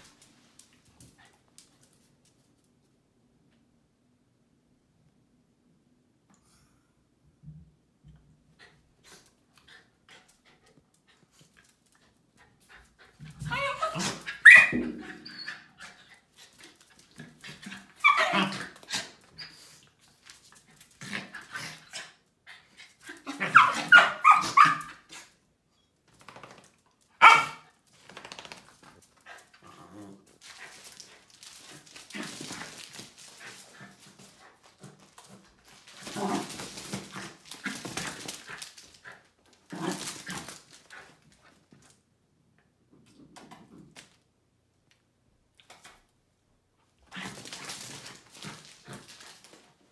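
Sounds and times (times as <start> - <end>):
dogs barking: 27.2 - 27.6.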